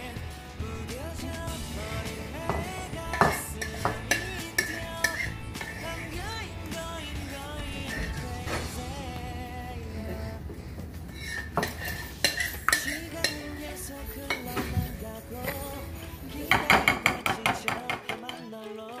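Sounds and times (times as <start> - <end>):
metal spoon scraping ceramic bowl: 2.5 - 6.2, 11.2 - 13.5.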